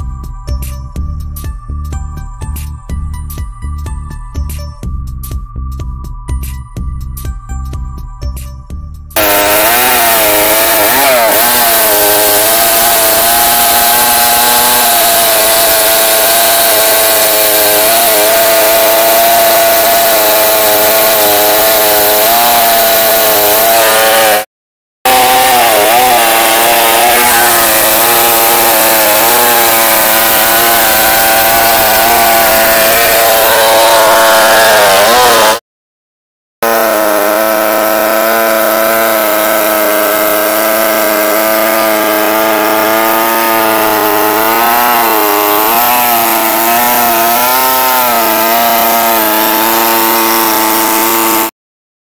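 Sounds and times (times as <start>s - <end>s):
chainsaw cutting through log: 9.2s - 24.5s, 25.1s - 35.6s, 36.6s - 51.6s.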